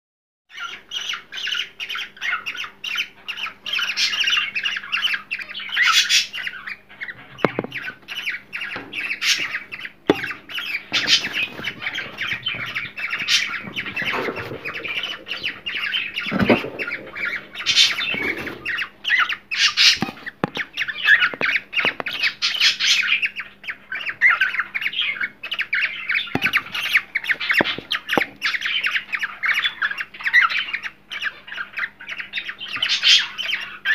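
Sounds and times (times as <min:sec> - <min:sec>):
cockatiels chattering and squawking: 0:00.5 - 0:33.9
soft knocks: 0:07.4 - 0:07.9, 0:26.4 - 0:26.9.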